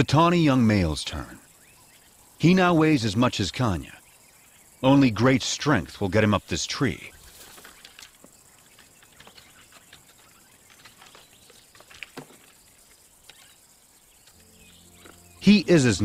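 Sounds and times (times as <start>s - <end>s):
background hiss: 0.0s - 16.0s
claws scratching tree bark: 7.2s - 13.6s.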